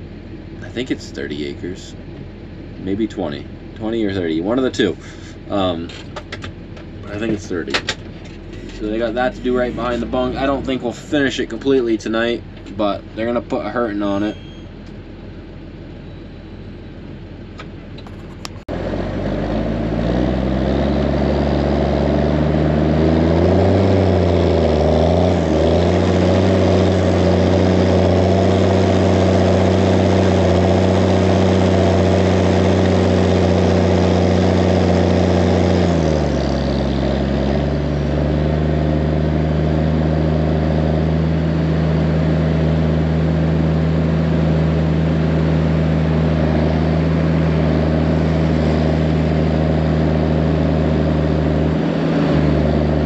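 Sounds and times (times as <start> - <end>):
tractor diesel engine under load: 0.0 - 53.0.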